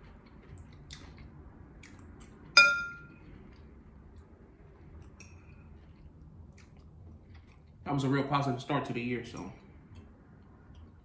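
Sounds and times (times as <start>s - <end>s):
fork clinking on ceramic bowl: 2.6s - 3.1s.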